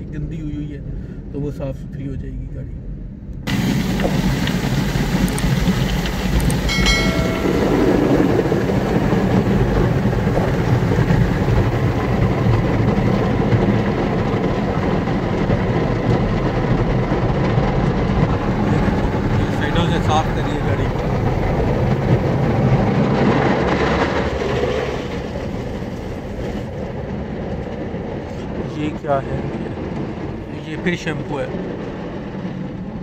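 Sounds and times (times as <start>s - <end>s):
car wash spray and brushes: 3.5s - 30.2s
short high tone: 6.7s - 8.5s.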